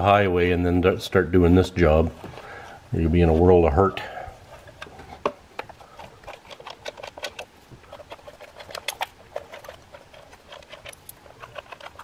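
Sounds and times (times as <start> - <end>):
hand tool clicking on screws: 5.6 - 12.0.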